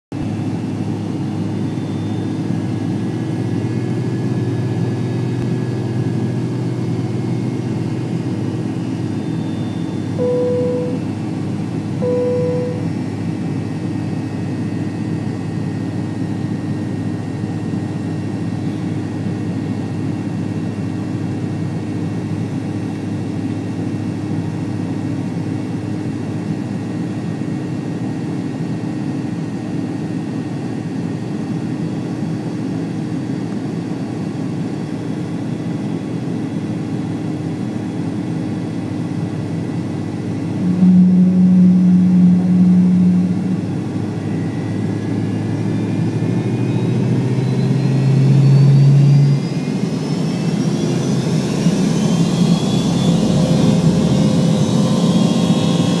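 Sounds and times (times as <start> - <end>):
jet engine hum and hiss in cabin: 0.2 - 56.0
short cabin tones: 9.6 - 11.2, 12.0 - 13.0, 40.6 - 43.9.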